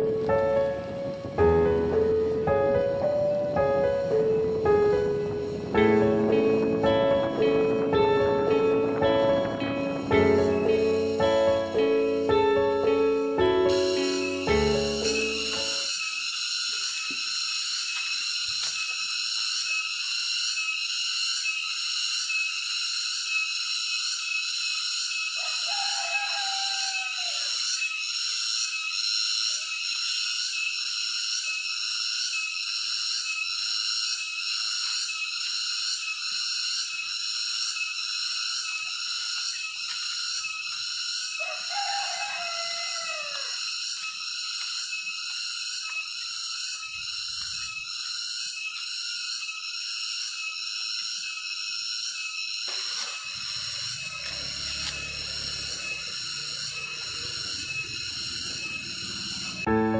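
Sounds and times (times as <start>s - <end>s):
soft background music: 0.0s - 15.8s, 59.7s - 59.9s
insect chorus droning: 0.0s - 59.9s
falling whistled call: 6.4s - 17.5s, 24.9s - 28.3s, 37.9s - 49.3s, 51.1s - 59.9s.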